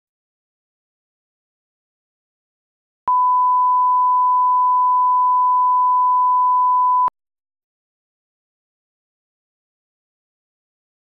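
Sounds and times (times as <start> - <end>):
steady test tone beep: 3.1 - 7.1.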